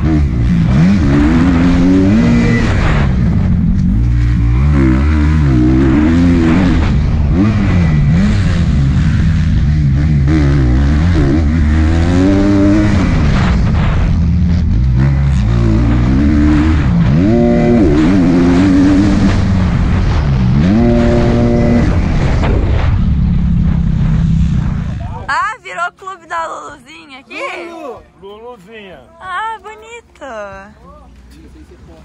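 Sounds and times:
dirt bike engine revving: 0.0s - 25.5s.

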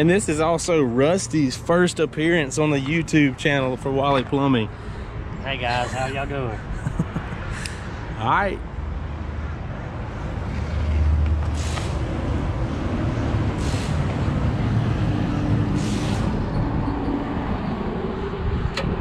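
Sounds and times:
short hisses: 11.6s - 12.0s, 13.6s - 14.0s, 15.8s - 16.4s.

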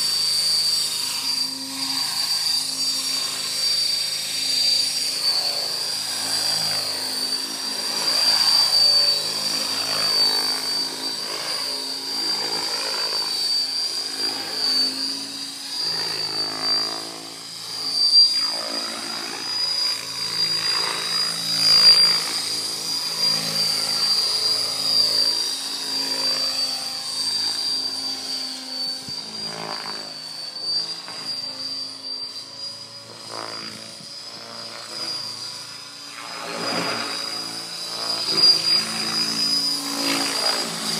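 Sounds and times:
high-pitched motor whine: 0.0s - 40.9s.

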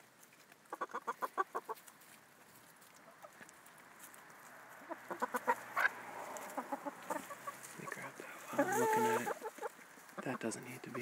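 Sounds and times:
hens clucking: 0.6s - 2.0s, 2.8s - 11.0s.

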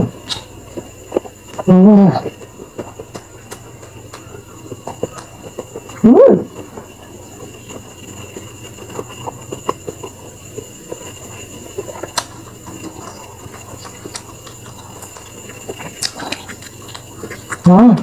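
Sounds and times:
faint high whine: 0.0s - 18.0s
wet chewing clicks and smacks: 0.2s - 17.7s.

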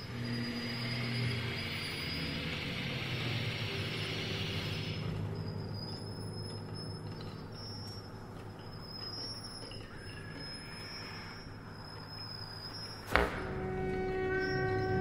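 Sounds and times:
low steady drone: 13.1s - 15.0s
chamber orchestra noise texture: 13.4s - 15.0s.

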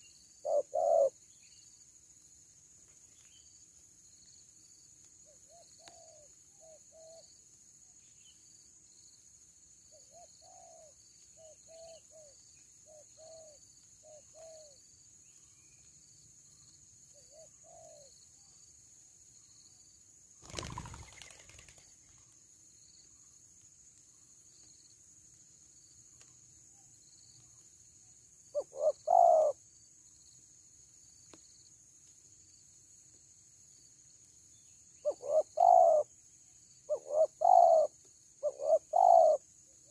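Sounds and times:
doves cooing: 0.4s - 1.1s, 28.6s - 29.6s, 35.0s - 36.1s, 36.9s - 39.4s.

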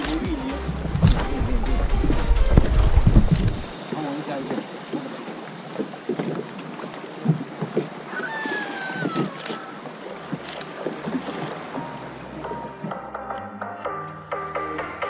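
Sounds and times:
river water lapping: 0.0s - 13.2s
wind on microphone: 0.7s - 3.8s.

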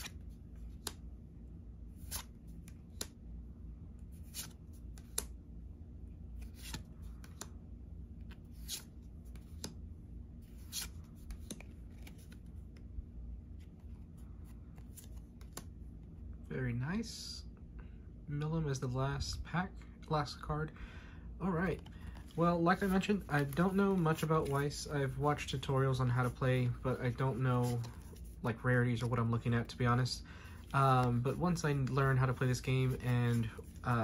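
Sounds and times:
cards swishing: 1.9s - 3.2s, 4.1s - 5.4s, 6.3s - 7.6s, 8.2s - 9.8s, 10.4s - 12.8s, 13.5s - 15.8s, 21.6s - 34.0s.

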